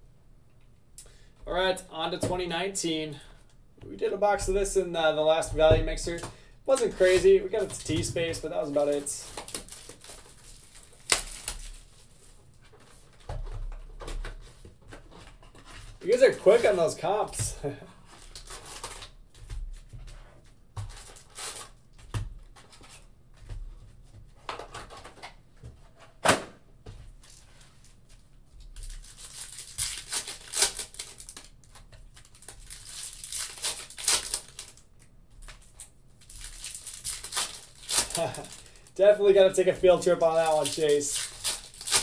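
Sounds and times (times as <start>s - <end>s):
foil wrappers tearing and crinkling: 8.7s - 12.2s, 18.2s - 19.2s, 20.9s - 21.8s, 28.6s - 34.8s, 35.4s - 42.0s.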